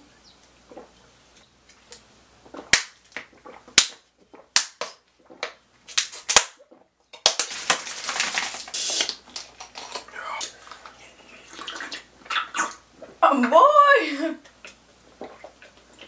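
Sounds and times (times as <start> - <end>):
person gulping a drink: 0.6 - 1.0, 2.4 - 4.6, 5.2 - 5.6, 6.2 - 13.2, 14.4 - 16.0
rustling and handling noise: 0.7 - 11.0.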